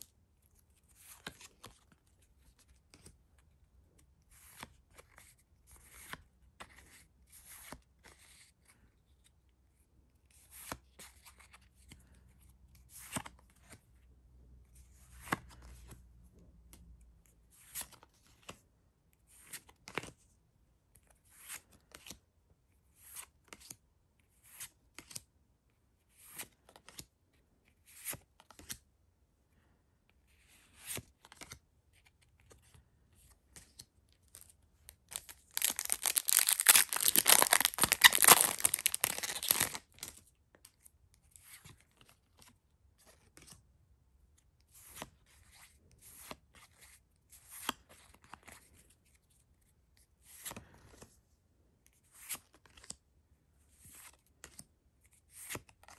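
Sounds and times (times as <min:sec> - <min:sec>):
cards sliding and snapping: 0:04.3 - 0:08.5, 0:30.4 - 0:31.6, 0:35.1 - 0:40.8, 0:50.3 - 0:51.1, 0:52.1 - 0:53.0, 0:53.8 - 0:55.9.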